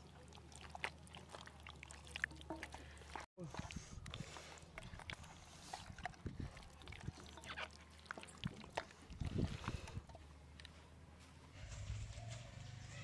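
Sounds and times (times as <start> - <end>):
hands squelching paste into chicken: 0.0 - 10.2.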